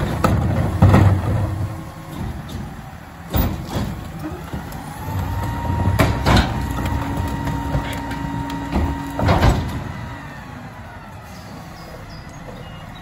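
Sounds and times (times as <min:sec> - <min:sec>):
clanks and thuds: 0:00.0 - 0:10.0
hydraulics whining: 0:00.0 - 0:13.0.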